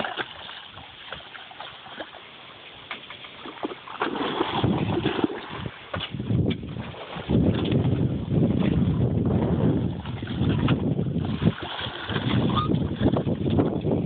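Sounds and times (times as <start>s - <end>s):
splashes: 0.0s - 9.0s, 9.6s - 13.3s
rumbling microphone handling noise: 4.4s - 14.0s.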